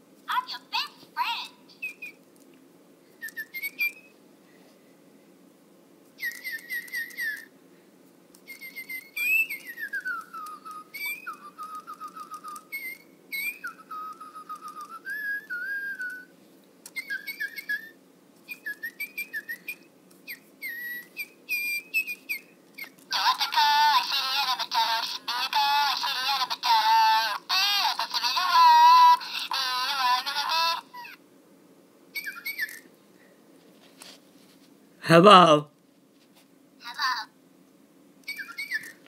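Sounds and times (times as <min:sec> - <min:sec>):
toy bird whistling and chirping: 0:00.7 - 0:02.2, 0:03.2 - 0:04.2, 0:06.2 - 0:07.5, 0:08.4 - 0:16.3, 0:16.9 - 0:31.2, 0:32.1 - 0:32.9, 0:38.2 - 0:39.0.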